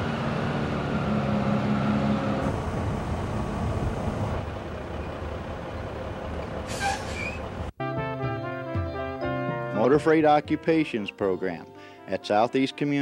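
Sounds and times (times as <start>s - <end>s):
truck diesel engine low hum: 0.0s - 7.8s.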